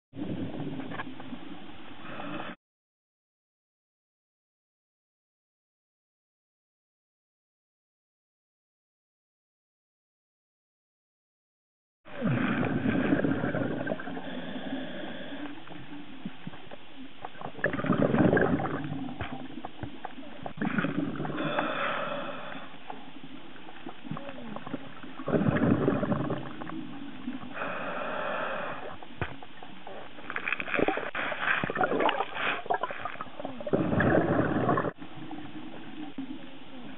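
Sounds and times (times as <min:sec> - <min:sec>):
diver breathing through regulator: 0:02.0 - 0:02.6, 0:12.2 - 0:15.8, 0:20.6 - 0:23.0, 0:27.5 - 0:29.0.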